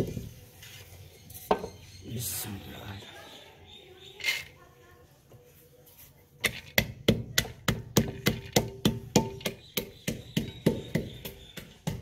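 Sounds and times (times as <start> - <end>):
wooden pestle pounding nuts in mortar: 6.4 - 12.0.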